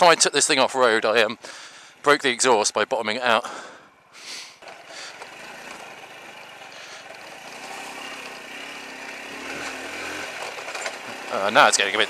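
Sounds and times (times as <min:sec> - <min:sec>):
motorcycle engine running: 0:04.6 - 0:12.0.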